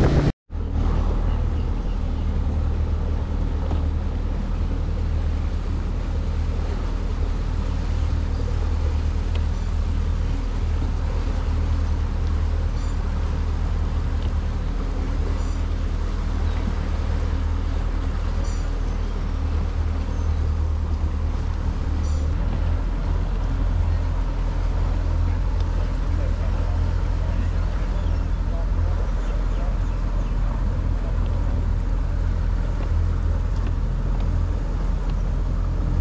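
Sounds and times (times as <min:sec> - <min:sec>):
outboard motor droning: 0:00.0 - 0:36.0.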